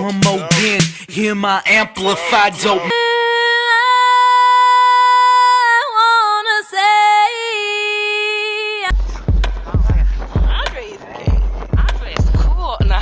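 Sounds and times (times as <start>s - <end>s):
person singing unaccompanied: 0.0s - 8.9s.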